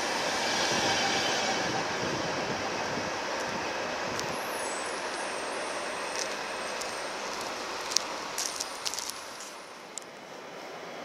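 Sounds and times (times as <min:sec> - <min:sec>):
train rolling on track: 0:00.0 - 0:11.0.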